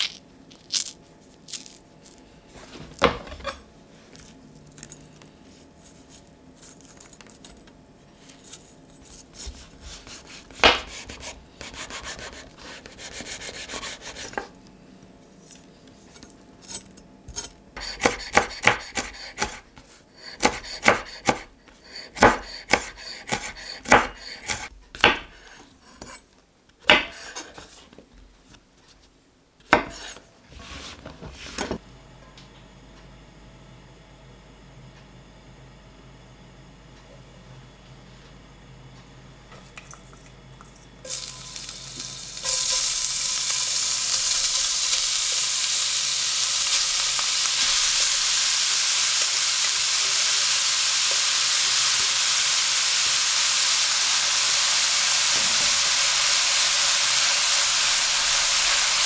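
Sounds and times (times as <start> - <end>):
knife chopping on wooden board: 9.4 - 12.4, 17.8 - 19.6, 20.4 - 21.5, 22.2 - 25.4.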